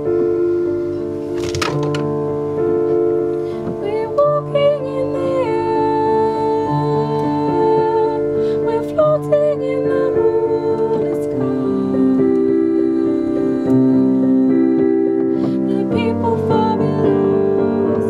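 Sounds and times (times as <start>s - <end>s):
electronic keyboard chords: 0.0s - 18.0s
woman singing: 3.7s - 18.0s.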